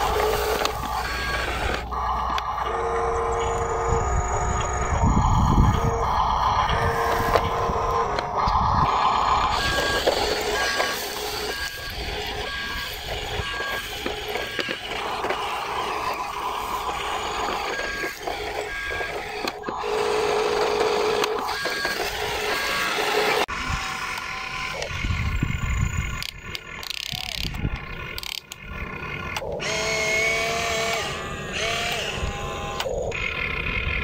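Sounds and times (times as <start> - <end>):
reversing beeper: 0.0 - 26.2
steady mechanical noise: 0.0 - 34.0.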